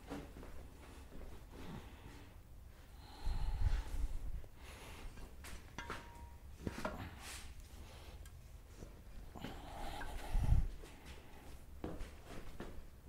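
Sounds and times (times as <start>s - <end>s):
sharp metal knocks and clinks: 5.7s - 6.7s.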